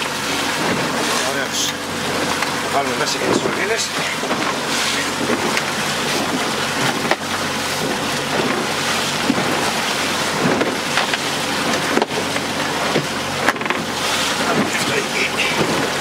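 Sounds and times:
sea noise: 0.0s - 16.0s
wind on microphone: 3.2s - 15.0s.

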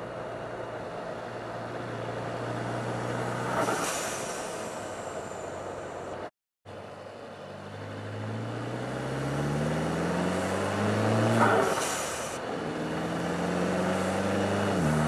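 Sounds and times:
blow-off valve hiss: 3.7s - 5.4s, 11.6s - 12.4s
car engine accelerating: 7.5s - 15.0s.

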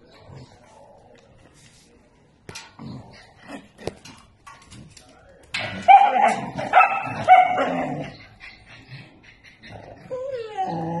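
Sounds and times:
dog whining: 9.7s - 11.0s.

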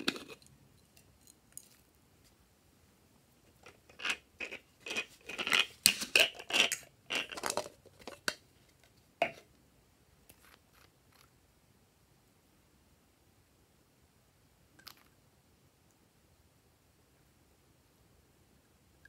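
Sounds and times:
plastic shaker bottle shaken: 4.0s - 8.2s.

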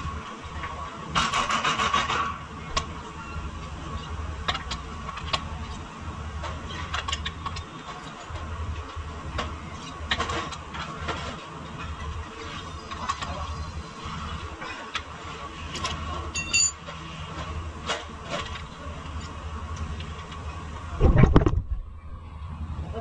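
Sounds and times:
low mechanical hum: 0.0s - 23.0s
metallic clinks of tools on metal: 16.3s - 16.8s.

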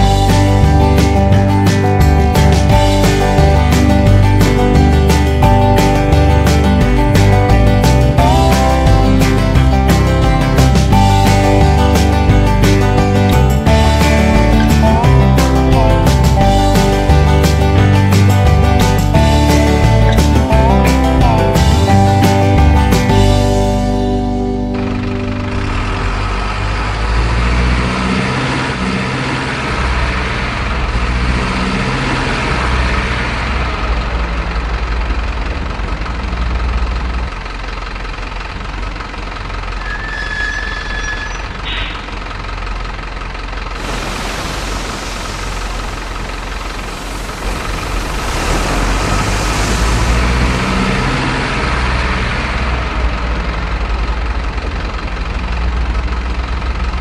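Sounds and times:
simulated diesel truck engine: 0.0s - 57.0s
loud even hiss: 43.8s - 51.1s.

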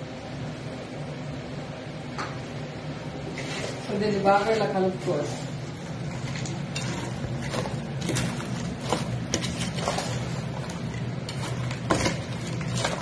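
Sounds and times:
low steady hum: 0.0s - 13.0s
spoon scraping metal bowl: 6.1s - 13.0s.

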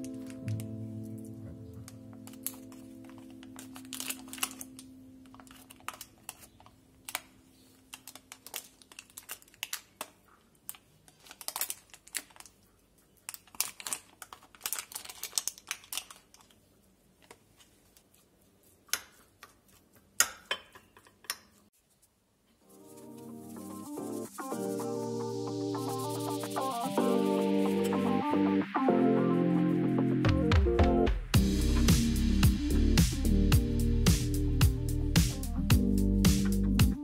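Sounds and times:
soft background music: 0.0s - 8.6s, 22.6s - 37.0s.

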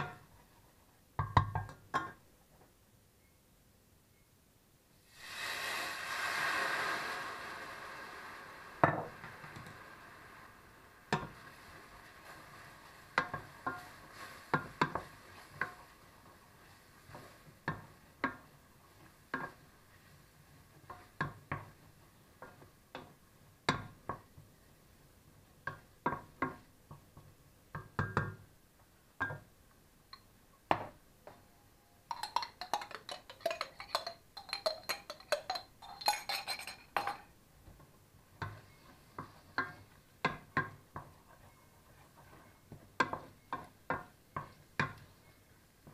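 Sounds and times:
wooden spoon stirring in metal pot: 11.1s - 24.6s, 32.1s - 45.9s.

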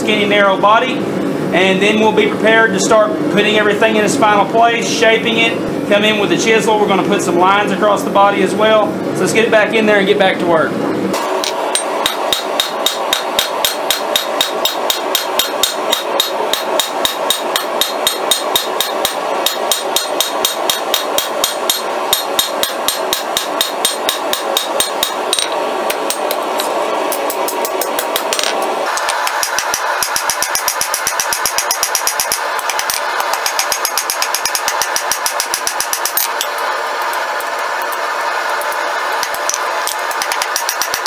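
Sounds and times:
hammer beating steel on anvil: 11.4s - 36.5s, 39.2s - 41.0s.

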